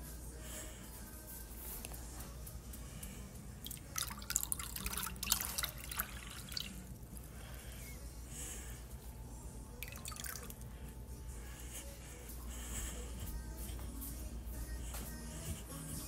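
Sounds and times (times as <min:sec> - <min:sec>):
water pouring into a bowl: 0:03.7 - 0:06.9, 0:09.8 - 0:10.6
water splashing and dripping: 0:03.7 - 0:06.9, 0:09.8 - 0:10.6.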